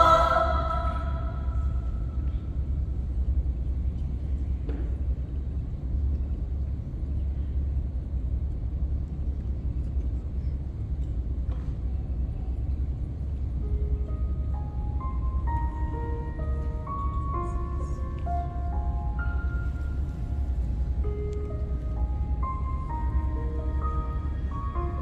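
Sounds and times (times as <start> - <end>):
low rumble of room noise: 0.0 - 25.0.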